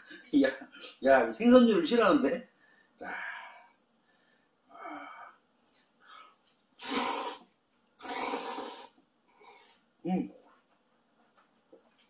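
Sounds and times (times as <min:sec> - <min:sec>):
faint mouth sounds: 0:06.8 - 0:09.0
person slurping noodles: 0:06.8 - 0:09.0.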